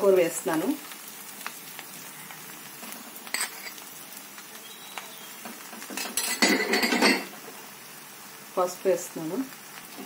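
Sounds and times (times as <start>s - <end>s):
faint sizzle in a pan: 0.0s - 10.0s
spoon clinking against pan: 6.0s - 7.3s.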